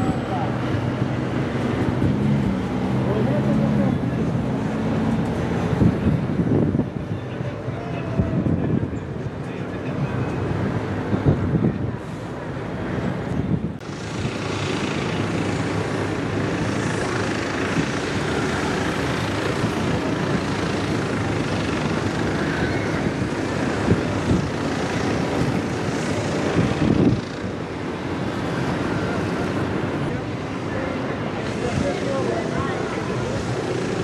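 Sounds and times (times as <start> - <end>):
wind on microphone: 5.1 - 9.4, 10.0 - 30.6.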